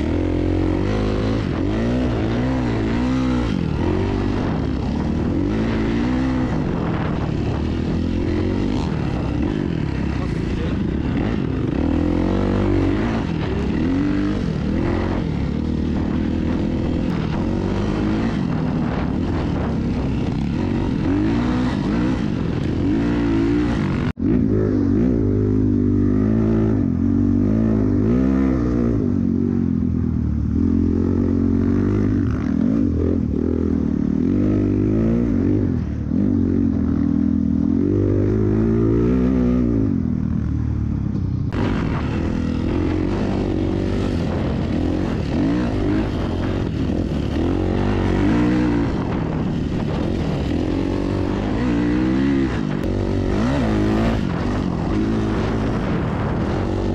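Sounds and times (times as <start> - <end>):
off-road vehicle engine revving: 0.0 - 29.6, 41.5 - 56.9.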